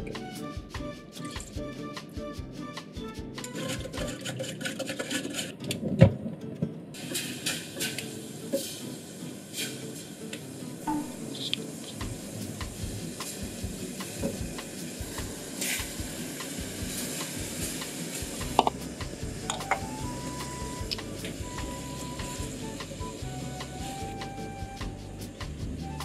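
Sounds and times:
sauce simmering in a saucepan: 7.0 - 24.6.

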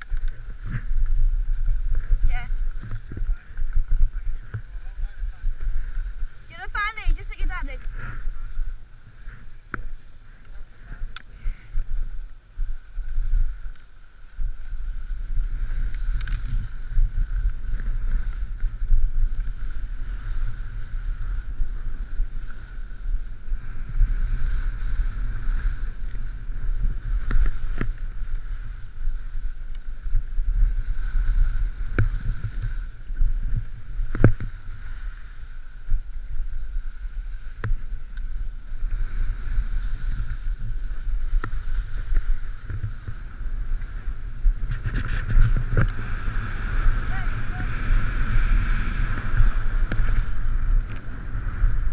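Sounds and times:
wind rumbling on microphone: 0.0 - 51.9
skis hissing over packed snow: 4.6 - 51.9
skis knocking on bumps: 31.7 - 34.6, 40.3 - 47.6.

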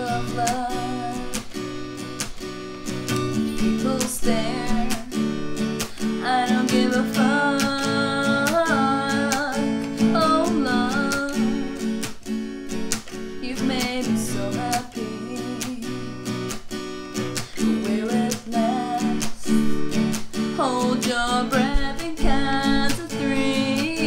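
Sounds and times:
acoustic guitar strumming: 0.0 - 24.0
person singing long notes: 3.6 - 12.0, 17.5 - 19.8, 20.6 - 24.0.

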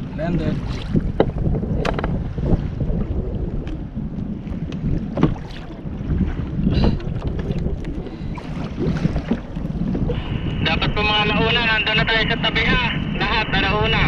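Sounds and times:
water lapping against hull: 0.0 - 14.0
wind buffeting microphone: 0.0 - 14.0
sharp clicks and knocks: 1.2 - 2.2.

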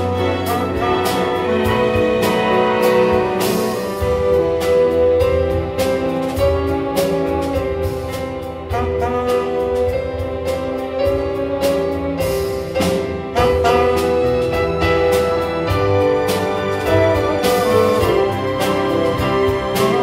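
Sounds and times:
tenor saxophone solo: 0.0 - 3.8, 8.7 - 10.0, 13.3 - 15.0
orchestral accompaniment: 0.0 - 20.0.

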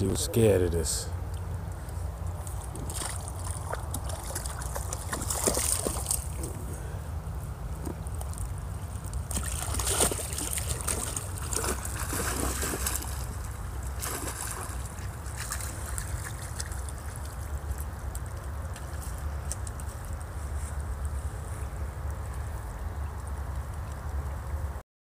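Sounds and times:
low steady rumble: 0.0 - 24.8
stream trickling: 0.0 - 24.8
sloshing through water: 2.4 - 6.7, 8.2 - 19.9
dog splashing into water: 2.8 - 6.5, 9.3 - 17.3.

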